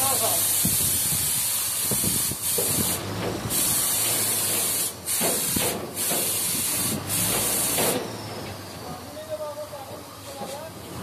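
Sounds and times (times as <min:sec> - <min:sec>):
paint spray gun hissing: 0:00.0 - 0:08.0.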